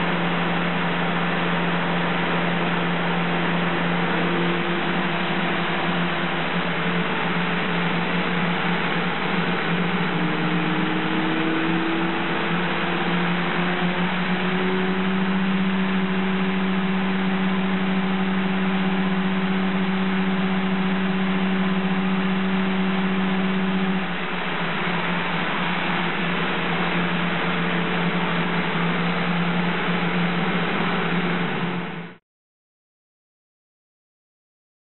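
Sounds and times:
car engine running hard: 0:00.0 - 0:32.2.

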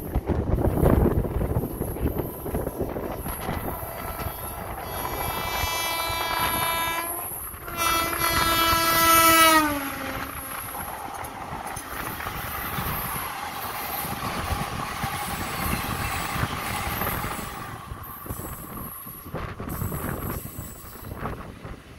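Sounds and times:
train wheels rumbling and clattering: 0:00.0 - 0:21.9
train horn blasts: 0:03.6 - 0:11.3.

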